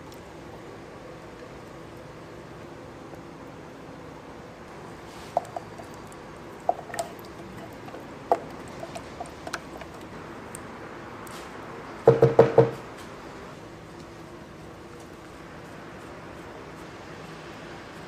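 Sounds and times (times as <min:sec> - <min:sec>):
spatula knocking on containers: 0:06.7 - 0:09.9, 0:12.1 - 0:12.8.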